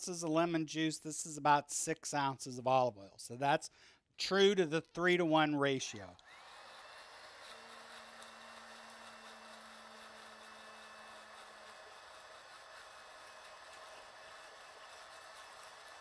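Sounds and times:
stick blender whirring: 5.9s - 16.0s.

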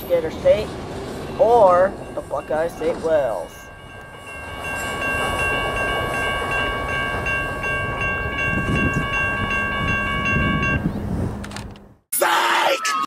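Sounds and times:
crossing warning bell ringing: 1.2s - 11.0s.

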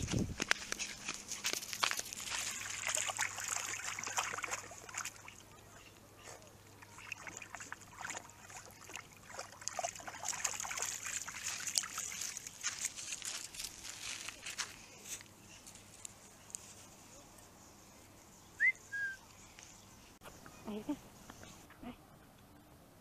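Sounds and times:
dog splashing in water: 1.9s - 5.8s, 6.8s - 13.1s.

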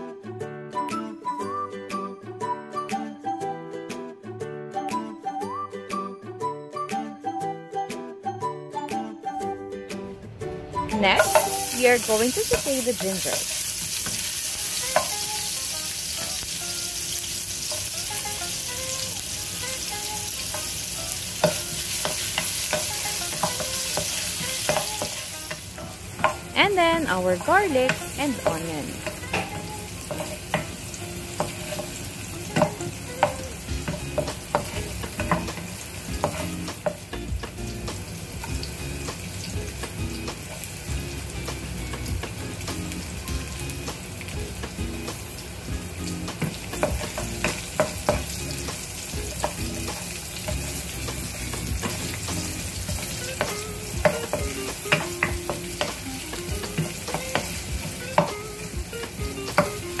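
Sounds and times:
food sizzling in hot oil: 10.8s - 60.0s
spatula tapping and scraping pan: 11.2s - 15.4s, 20.4s - 26.5s, 27.4s - 37.6s, 46.3s - 60.0s.

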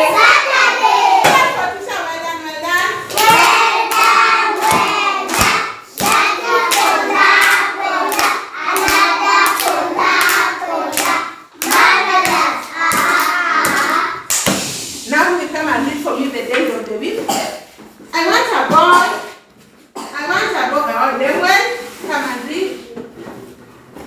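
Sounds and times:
children and adult singing: 0.0s - 1.7s, 3.0s - 14.3s
hands clapping steady beat: 3.1s - 14.8s.

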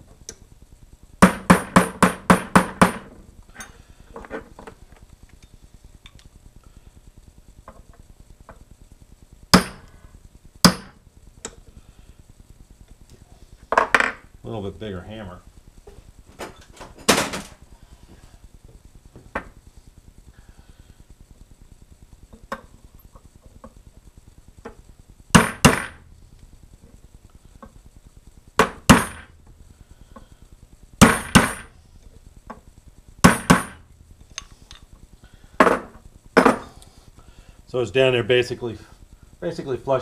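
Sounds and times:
hammer striking metal pin: 9.6s - 9.9s, 10.7s - 11.0s.

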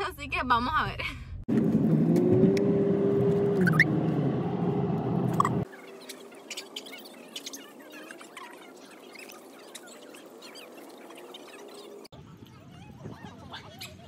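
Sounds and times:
faint chirps: 5.4s - 12.1s.

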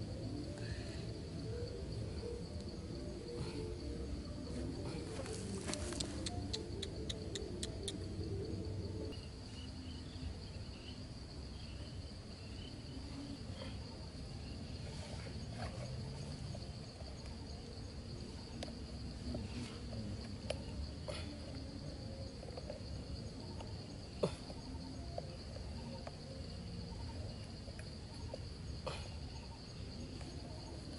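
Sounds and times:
high-pitched insect drone: 0.0s - 30.9s.

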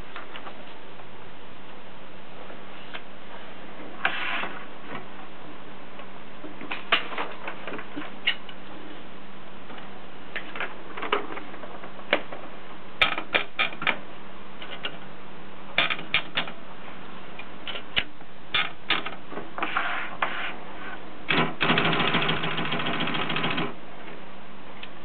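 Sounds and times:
typewriter platen ratcheting: 21.3s - 23.7s
typewriter clicks and clacks: 21.3s - 23.8s.

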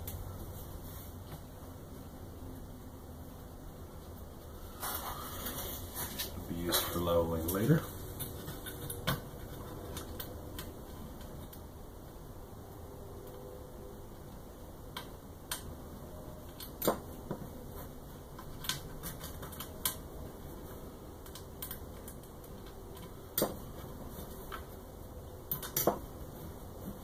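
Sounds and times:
faint steady hum: 0.0s - 27.0s
small metal hardware clicks: 25.5s - 26.0s.

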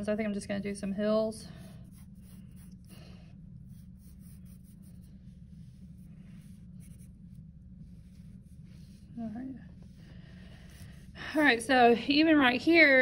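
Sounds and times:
steady low hum: 0.0s - 13.0s
pencil scratching on paper: 1.5s - 3.0s, 3.6s - 10.0s.

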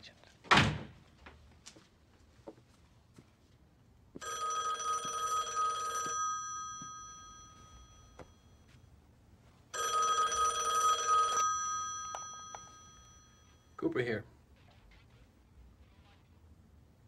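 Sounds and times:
telephone bell ringing: 4.2s - 8.8s, 9.7s - 13.8s.

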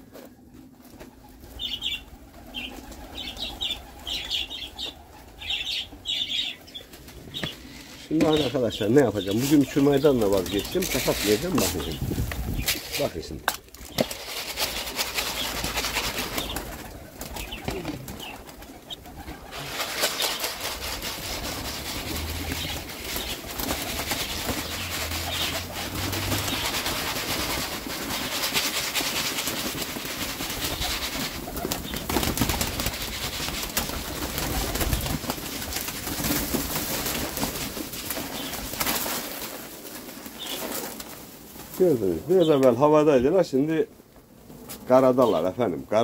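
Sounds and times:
pigeons cooing: 0.0s - 13.2s, 13.9s - 36.5s
pigeon wings flapping: 0.1s - 7.6s, 8.3s - 41.8s.

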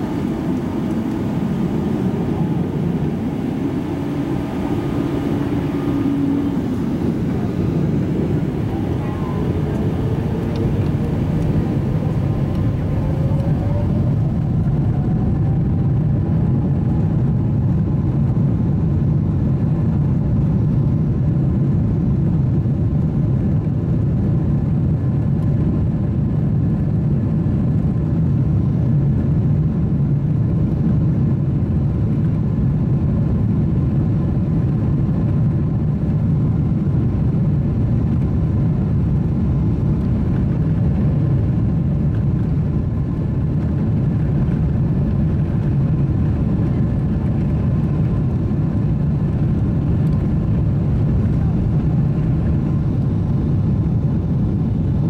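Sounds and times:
airliner cabin rumble: 0.0s - 55.0s.

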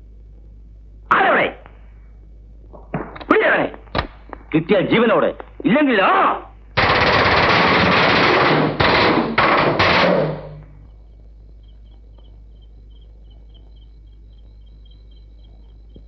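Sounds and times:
machine-gun fire: 6.8s - 10.8s
crickets chirping: 9.4s - 16.0s.

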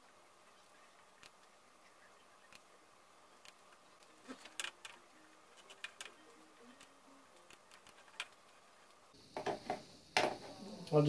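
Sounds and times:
computer mouse clicks: 3.4s - 9.0s.

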